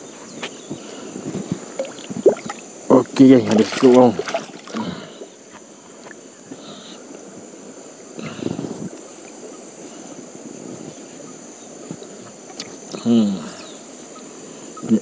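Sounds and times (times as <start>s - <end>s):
river water splashing: 1.6s - 8.2s.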